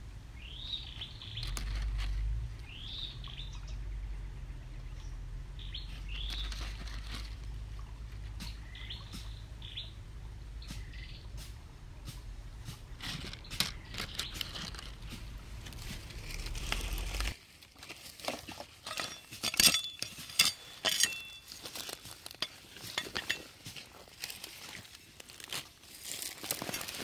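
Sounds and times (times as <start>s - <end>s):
stones and dry leaves clicking: 1.0s - 2.4s, 5.9s - 8.6s, 12.7s - 27.0s
low rumble: 7.2s - 17.4s.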